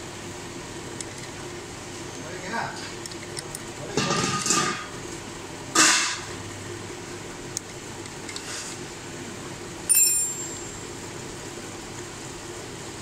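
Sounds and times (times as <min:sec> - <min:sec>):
metallic clink: 0:09.9 - 0:10.6.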